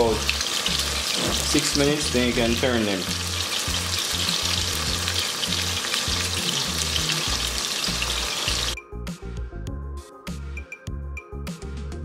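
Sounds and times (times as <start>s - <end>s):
chicken frying in hot oil: 0.0s - 8.8s
background music with steady beat: 0.1s - 12.0s.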